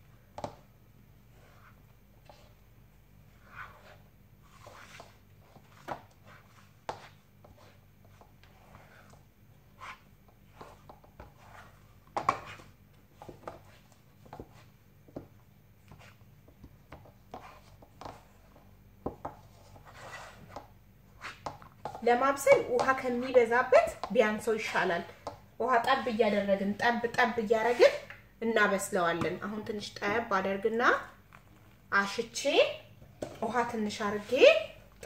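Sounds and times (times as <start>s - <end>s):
wooden spoon scraping saucepan: 3.3s - 14.7s, 19.2s - 24.9s, 27.4s - 28.1s, 33.2s - 34.8s.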